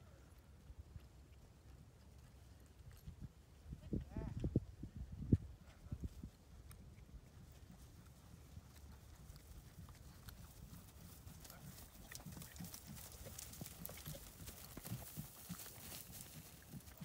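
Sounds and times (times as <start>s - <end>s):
horse hoofbeats on dry grass: 5.6s - 17.0s.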